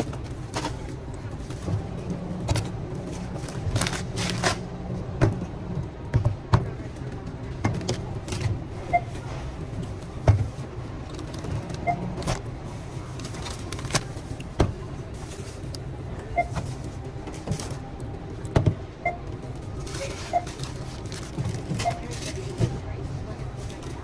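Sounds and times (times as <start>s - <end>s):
steady low hum: 0.0s - 24.0s
checkout scanner beeps: 8.0s - 10.2s, 11.7s - 12.4s, 16.0s - 17.2s, 18.9s - 23.0s.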